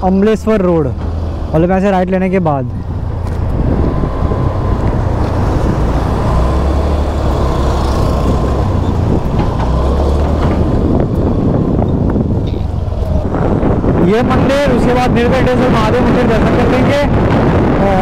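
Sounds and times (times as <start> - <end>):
wind and road noise: 0.0 - 18.0.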